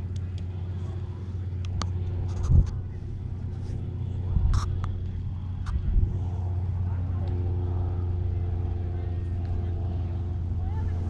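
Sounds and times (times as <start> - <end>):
helicopter engine and rotor drone: 0.0 - 11.0
wind bumps on microphone: 2.2 - 6.4.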